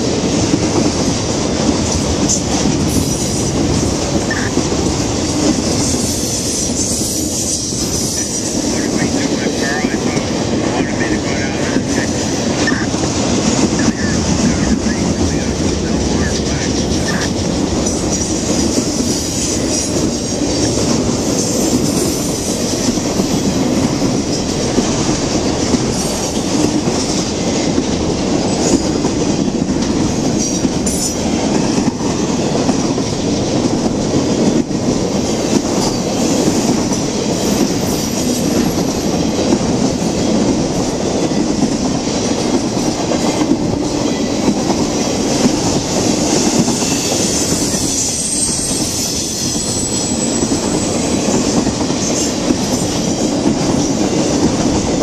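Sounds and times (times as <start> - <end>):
freight train rumbling past: 0.0 - 55.0
wheel squeals: 46.7 - 51.2.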